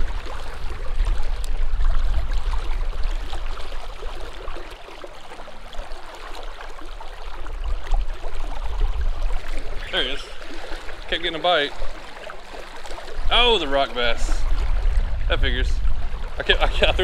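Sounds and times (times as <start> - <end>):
river current rushing: 8.2 - 14.8.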